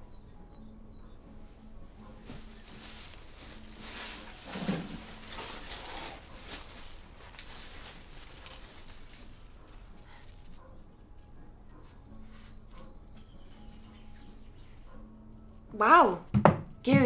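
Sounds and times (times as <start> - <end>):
paper and cardboard rustling: 2.2 - 10.7.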